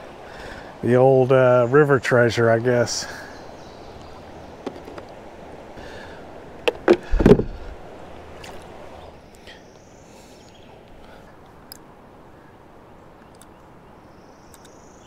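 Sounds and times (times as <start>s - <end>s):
shallow stream water: 0.0s - 14.8s
hollow knocks on plastic kayak hull: 4.6s - 5.1s, 6.7s - 7.6s.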